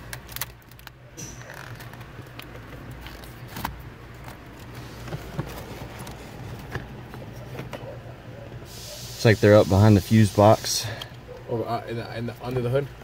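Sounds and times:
hands handling wiring and plastic trim: 0.0s - 7.9s.

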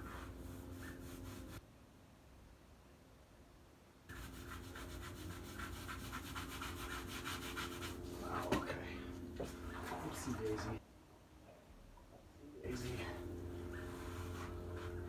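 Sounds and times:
grout scrubbing on tiles: 4.1s - 8.6s.

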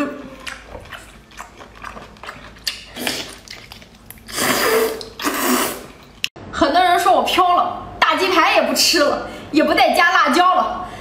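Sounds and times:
wet chewing and sucking: 0.3s - 6.1s
loud slurp: 1.4s - 5.9s.

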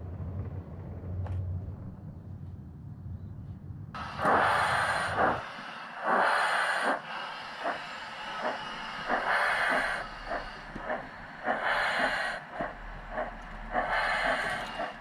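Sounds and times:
model steam locomotive chuffing: 4.0s - 15.0s.

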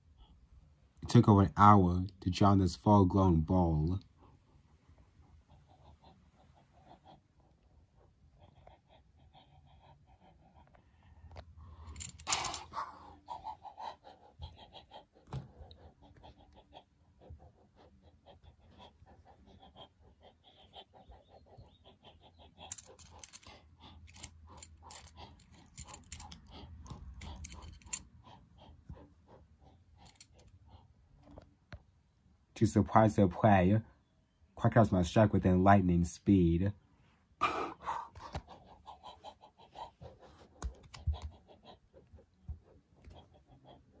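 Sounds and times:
plastic toy figures clicking on carpet: 22.6s - 28.1s, 40.0s - 43.5s.

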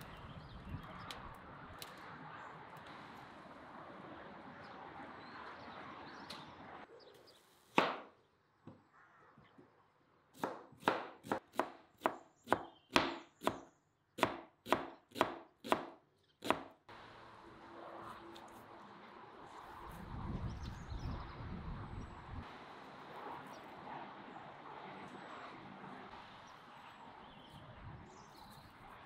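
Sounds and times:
knife chopping onion on cutting board: 10.4s - 13.6s, 14.2s - 16.7s.

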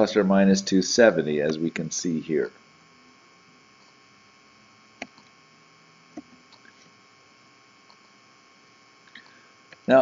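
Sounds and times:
electrical mains hum: 0.0s - 10.0s
computer mouse clicks: 5.0s - 5.3s.

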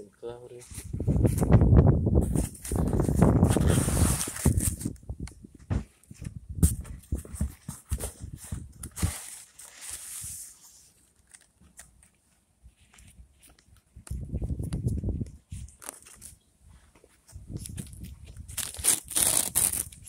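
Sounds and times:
unpacking rustles and clicks: 2.3s - 5.0s, 7.0s - 12.2s, 15.6s - 16.4s, 17.6s - 20.0s.

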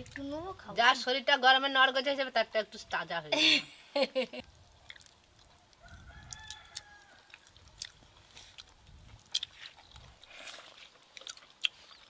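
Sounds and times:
faint rooster crowing: 5.6s - 7.6s.

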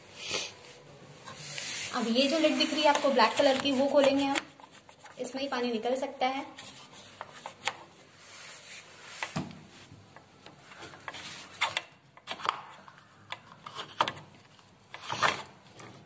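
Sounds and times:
plastic scraping on plastic: 1.3s - 5.3s, 10.8s - 16.0s.

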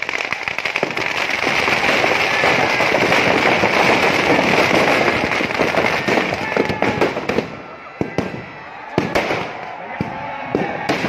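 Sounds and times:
firecrackers crackling: 0.0s - 11.0s.

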